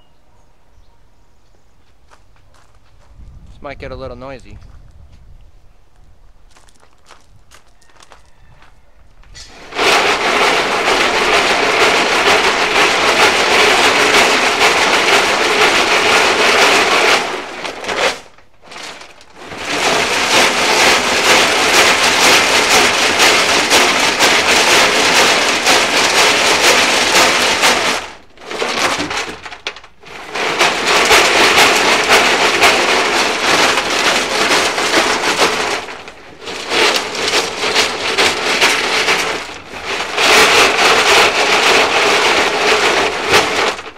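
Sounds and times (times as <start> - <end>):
gravel rattling inside steel tank: 9.3 - 43.9.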